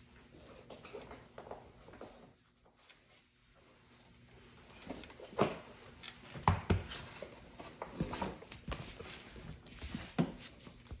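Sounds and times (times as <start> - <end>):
knocks scuffs and rustles: 4.8 - 11.0.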